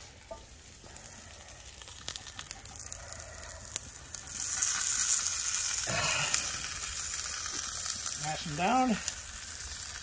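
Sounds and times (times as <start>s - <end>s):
burger patties sizzling: 0.0s - 10.0s
small crackles and pops: 0.0s - 10.0s.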